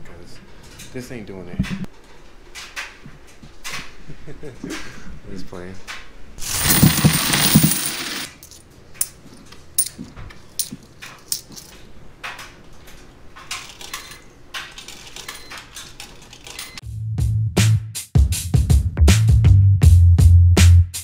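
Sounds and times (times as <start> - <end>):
coins poured onto counter: 6.4 - 8.6
coins clicking while stacked: 6.4 - 11.8, 13.4 - 16.8
coins loaded into washer slide: 6.4 - 11.8, 13.4 - 16.8.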